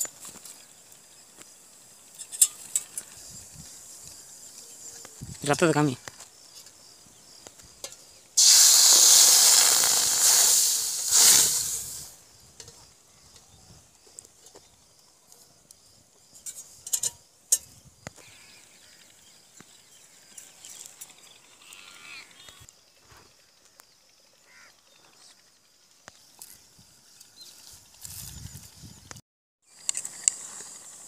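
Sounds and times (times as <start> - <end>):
liquid sizzling in hot oil: 8.4 - 12.2.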